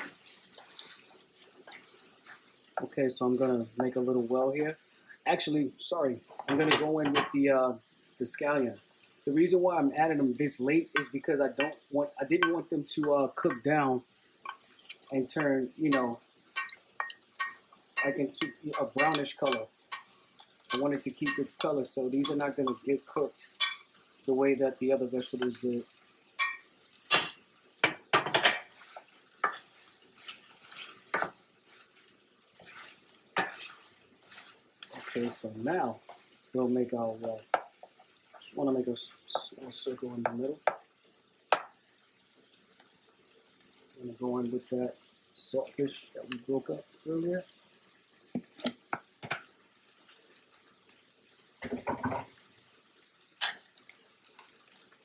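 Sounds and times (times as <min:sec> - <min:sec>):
wooden spoon knocking on pan: 0:37.5 - 0:38.0, 0:40.2 - 0:40.9, 0:41.5 - 0:41.8, 0:48.3 - 0:49.5.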